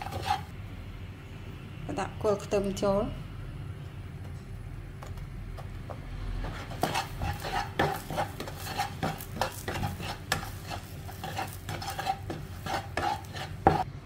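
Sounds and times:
spatula scraping a wok: 0.0s - 0.5s, 6.3s - 13.9s
egg yolk frying: 6.7s - 13.9s.

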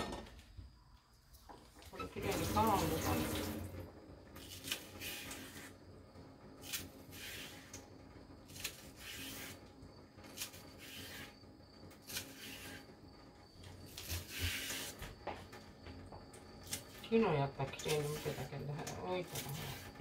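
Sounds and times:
skin rasping off plant stalks: 4.4s - 5.7s, 6.6s - 7.8s, 8.5s - 11.4s, 12.0s - 12.9s, 13.8s - 15.2s, 17.7s - 20.0s.

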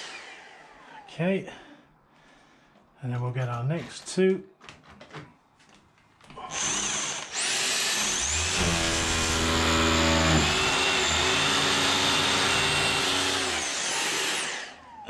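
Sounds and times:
power drill boring: 0.0s - 1.1s, 6.5s - 15.0s
vacuum cleaner running: 7.3s - 15.0s.

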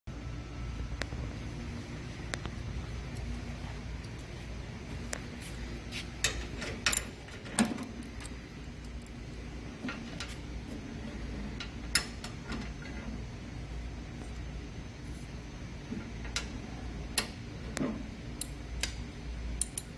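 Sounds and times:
socket wrench metallic clicks: 19.6s - 19.9s.

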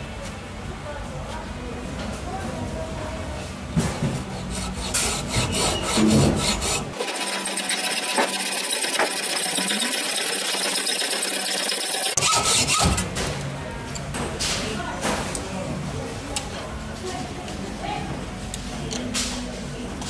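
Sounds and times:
hacksaw rasping through metal: 4.4s - 13.0s.

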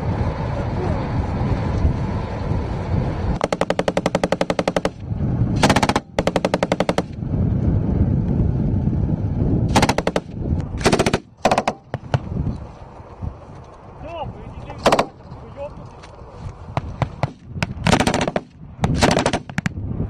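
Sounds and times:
armoured vehicle engine running: 0.0s - 20.0s
machine gun firing bursts: 3.4s - 5.0s, 5.6s - 7.2s, 9.7s - 11.8s, 14.8s - 15.2s, 17.2s - 19.6s.

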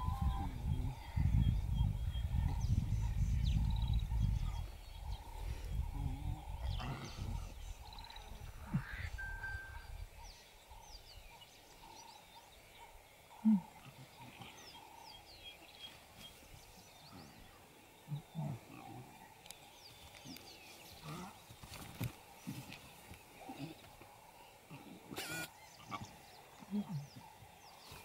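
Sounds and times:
faint bird chirps: 0.0s - 28.0s
lion cubs grunting: 2.2s - 9.4s, 11.8s - 15.5s, 16.9s - 19.3s, 23.4s - 28.0s.

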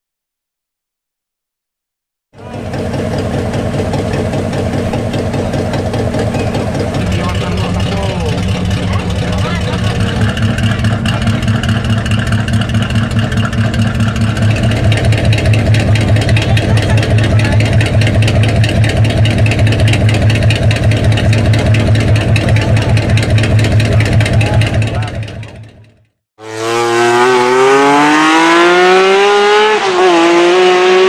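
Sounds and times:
car engine idling with lope: 2.4s - 26.1s.

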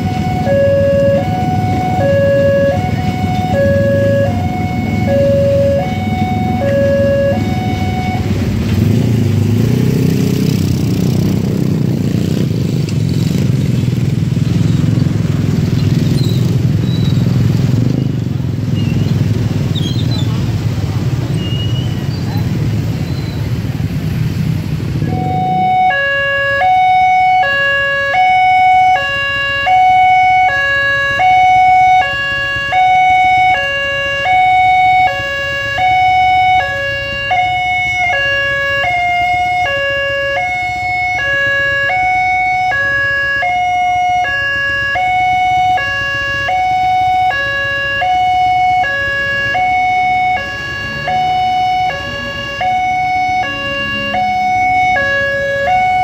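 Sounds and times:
level crossing two-tone alarm: 0.0s - 8.5s, 25.1s - 56.0s
low traffic hum: 0.0s - 56.0s.

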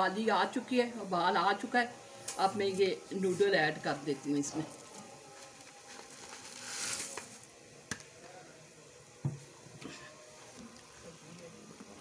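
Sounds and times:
broth bubbling and hissing in pan: 0.0s - 7.9s.

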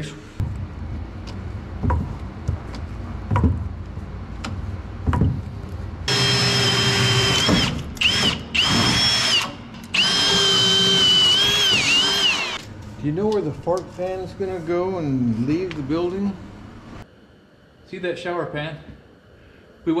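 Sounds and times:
knocks on wood: 3.3s - 3.6s
cordless drill motor whine: 6.1s - 12.6s.

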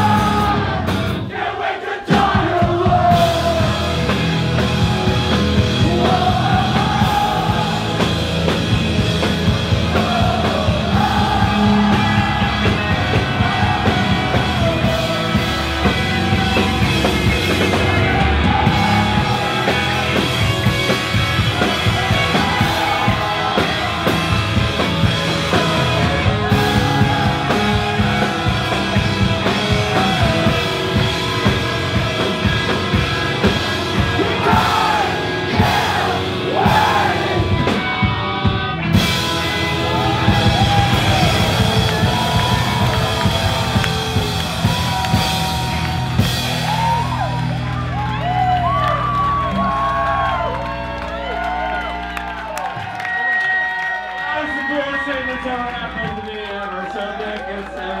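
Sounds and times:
punk rock band playing: 0.0s - 56.3s
person shouting singing: 5.8s - 8.1s, 34.2s - 37.5s.

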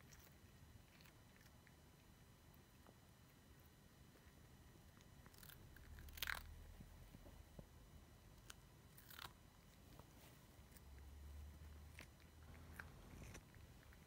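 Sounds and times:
cat crunching cucumber: 0.0s - 1.8s, 4.9s - 6.6s, 8.4s - 9.8s, 11.7s - 14.0s.

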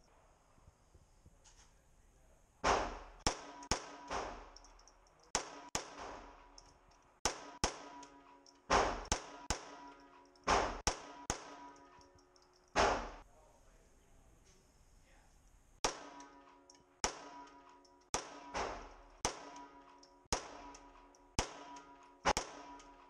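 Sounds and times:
pistol shots echoing: 2.6s - 4.6s, 5.3s - 6.5s, 7.2s - 12.0s, 12.8s - 13.2s, 15.8s - 23.0s.

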